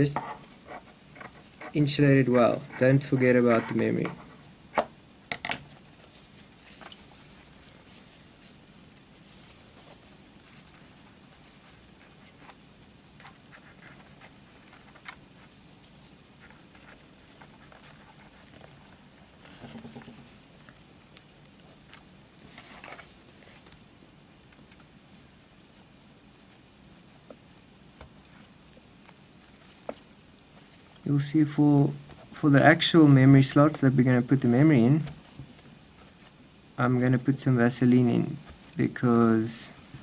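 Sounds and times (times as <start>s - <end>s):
paper towel rustling: 5.7s - 20.7s.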